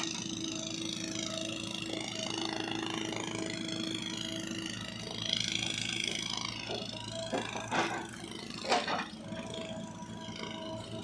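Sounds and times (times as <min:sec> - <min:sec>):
diesel engine under load: 0:00.0 - 0:11.0
hydraulic whine: 0:00.0 - 0:11.0.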